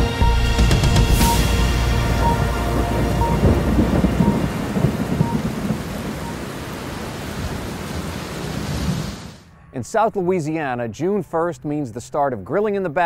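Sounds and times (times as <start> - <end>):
rolling thunder: 0.7 - 9.4
heavy rain hiss: 1.1 - 9.4.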